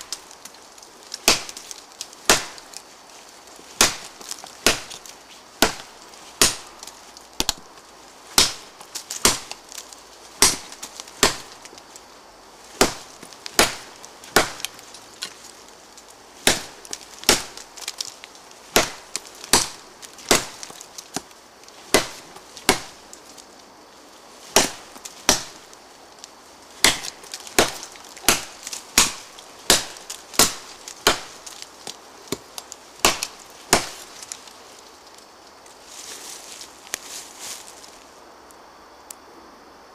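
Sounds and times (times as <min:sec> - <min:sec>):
blade chopping into tree trunk: 0:01.2 - 0:02.8, 0:03.7 - 0:07.7, 0:08.3 - 0:11.8, 0:12.7 - 0:15.4, 0:16.4 - 0:23.1, 0:24.5 - 0:25.7, 0:26.8 - 0:34.4.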